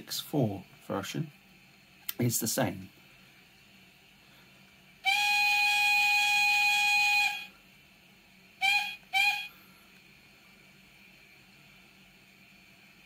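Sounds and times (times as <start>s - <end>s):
model steam locomotive whistle: 5.0s - 7.6s, 8.6s - 9.6s.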